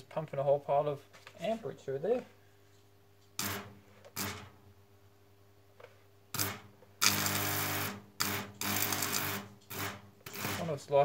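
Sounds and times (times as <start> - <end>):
electric arc buzzing: 3.4 - 4.6, 6.3 - 11.0.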